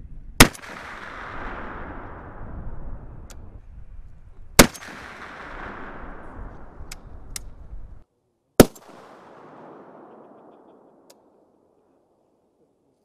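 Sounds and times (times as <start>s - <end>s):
loud rifle shot: 0.4s - 2.9s, 4.6s - 6.9s, 8.6s - 11.4s
echo of gunshot: 0.4s - 3.2s, 4.6s - 7.2s, 8.6s - 11.6s.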